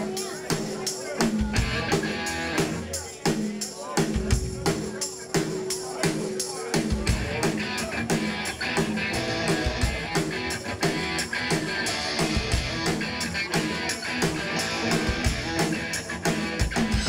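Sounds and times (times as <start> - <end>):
drum kit beat: 0.0 - 17.0
electric guitars: 1.4 - 2.9, 7.0 - 17.0.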